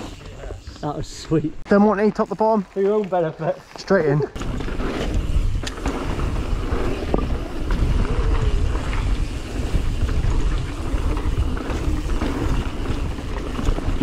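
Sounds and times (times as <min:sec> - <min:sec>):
tyres rolling on dirt: 0:00.0 - 0:14.0
wind on microphone: 0:04.4 - 0:14.0.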